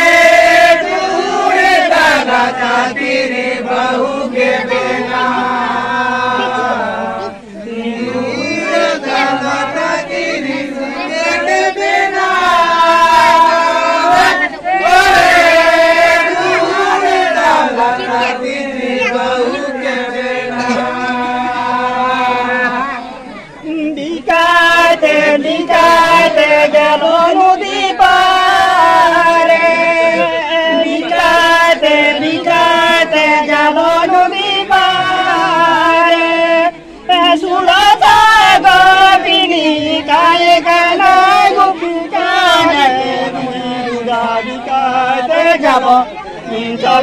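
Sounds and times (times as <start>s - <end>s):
men chanting a folk song: 0.0s - 47.0s.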